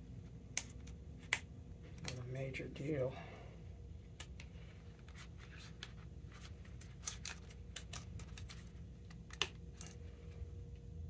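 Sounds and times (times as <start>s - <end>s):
low steady hum: 0.0s - 11.0s
plastic strip clicking and scratching: 6.8s - 10.0s.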